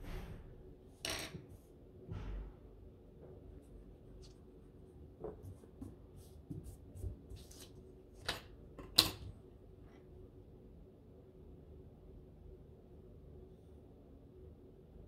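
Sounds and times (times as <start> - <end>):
paper rustling: 5.2 - 7.8.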